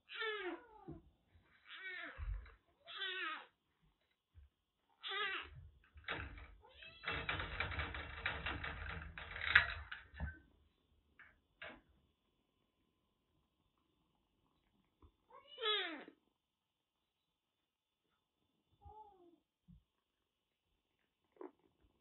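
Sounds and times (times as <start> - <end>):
rattling of wire pet cage: 6.0 - 10.4.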